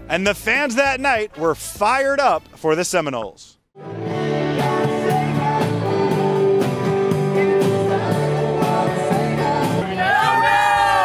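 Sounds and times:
electric guitars: 0:03.8 - 0:09.8
person singing: 0:04.3 - 0:10.9.

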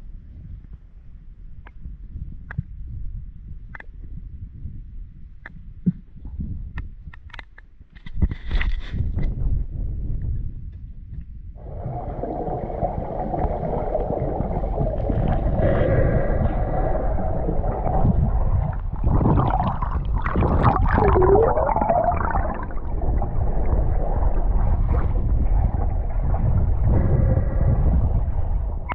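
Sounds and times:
muffled underwater rumbling: 0:08.3 - 0:28.9
water splashing: 0:11.6 - 0:27.5.

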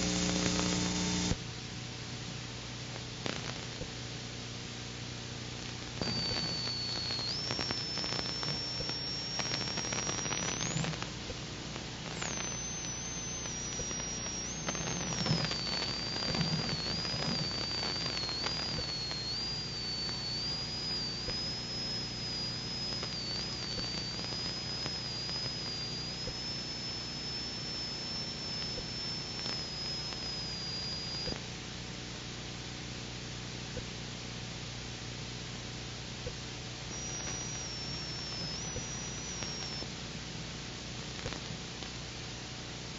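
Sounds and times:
high electronic whine: 0:00.0 - 0:01.4, 0:05.8 - 0:31.4, 0:36.2 - 0:40.0.

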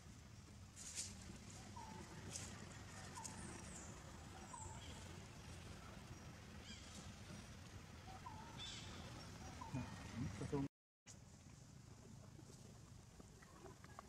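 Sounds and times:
high chirping animal calls: 0:08.0 - 0:10.4.

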